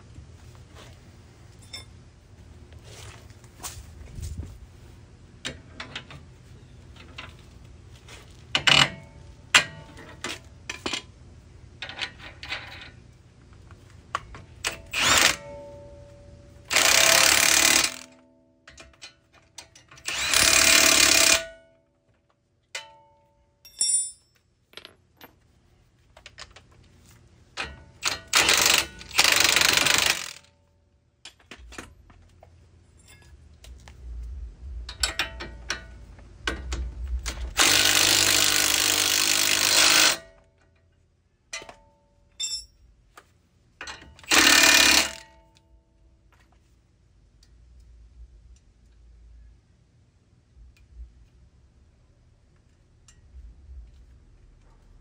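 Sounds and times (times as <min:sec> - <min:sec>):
cordless power tool running: 0:16.7 - 0:18.0, 0:28.4 - 0:30.4, 0:37.6 - 0:40.2.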